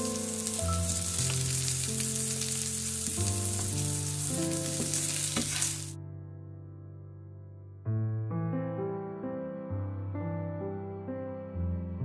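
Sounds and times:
crackles of frying: 0:00.0 - 0:06.0
oil sizzling in a wok: 0:00.0 - 0:06.0
soft background music chords: 0:00.0 - 0:07.8.

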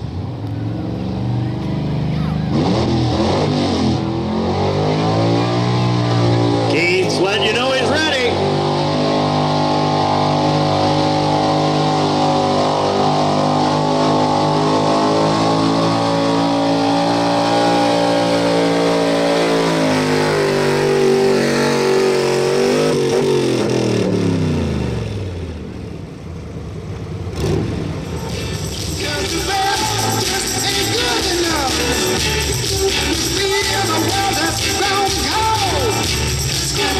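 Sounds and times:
engine at full throttle: 0:00.0 - 0:36.9.

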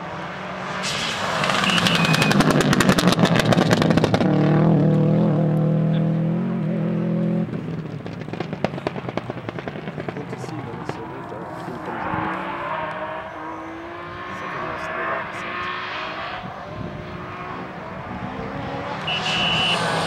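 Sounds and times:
rally car engine driven hard: 0:00.0 - 0:20.0
exhaust crackling pops: 0:00.8 - 0:05.0, 0:07.5 - 0:11.1.

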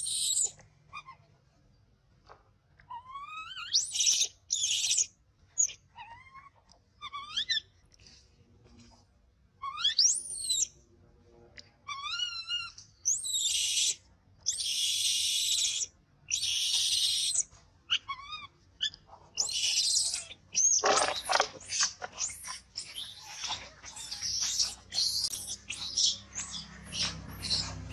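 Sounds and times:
baby monkey screaming: 0:00.0 - 0:01.2, 0:02.9 - 0:07.6, 0:09.6 - 0:10.7, 0:11.9 - 0:27.9.

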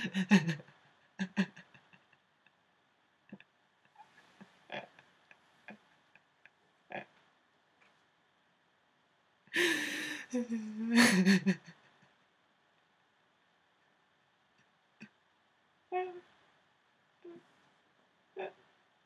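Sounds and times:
woman gasping and sobbing wail: 0:00.0 - 0:00.6, 0:09.6 - 0:11.7
woman laughing breathily: 0:00.0 - 0:02.2, 0:09.6 - 0:12.2.

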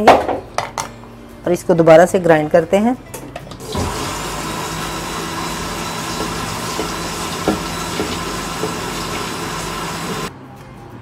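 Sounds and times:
electric blender running: 0:03.6 - 0:10.3.

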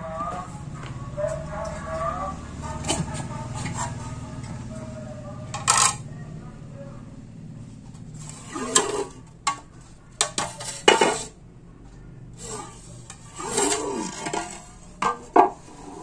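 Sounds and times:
plastic fan blade scraping on tile: 0:02.6 - 0:04.7, 0:05.5 - 0:06.1, 0:07.9 - 0:11.4, 0:12.3 - 0:16.0.

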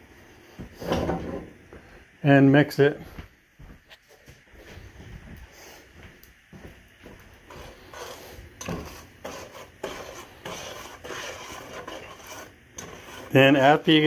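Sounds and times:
spoon scraping saucepan: 0:07.5 - 0:13.9.

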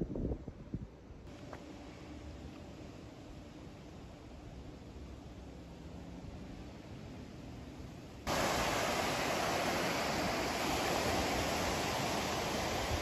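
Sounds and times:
faint low hiss: 0:00.0 - 0:13.0
wind: 0:00.0 - 0:13.0
waves breaking on gravel beach: 0:08.3 - 0:13.0.

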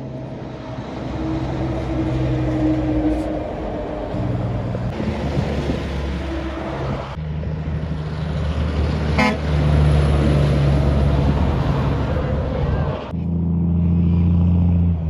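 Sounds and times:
diesel trucks passing: 0:00.0 - 0:15.0
truck engine drone: 0:00.0 - 0:15.0
short horn toot: 0:09.2 - 0:09.4.

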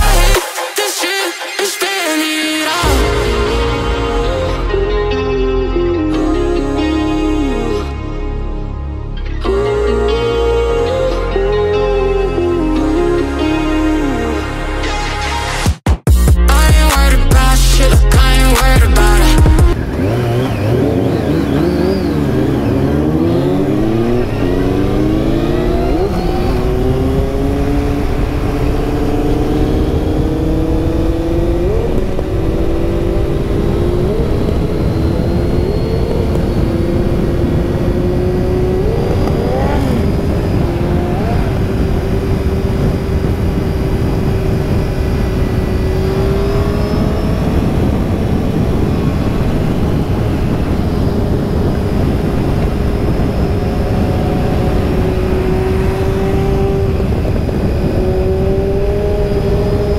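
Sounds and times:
motorcycle engines accelerating: 0:18.7 - 0:59.9
wind rush on helmet: 0:19.8 - 0:59.9.

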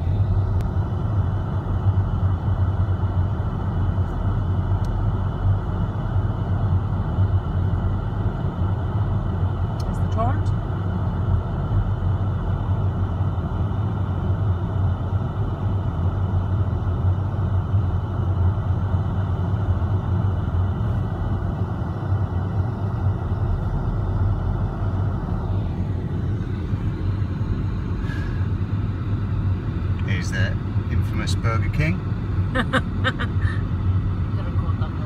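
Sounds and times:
car interior engine rumble: 0:00.0 - 0:35.0.

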